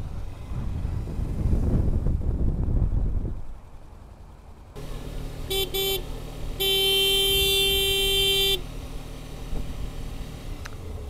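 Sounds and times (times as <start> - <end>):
road and motor noise: 0.0 - 11.0
vehicle horn honking: 5.4 - 8.7.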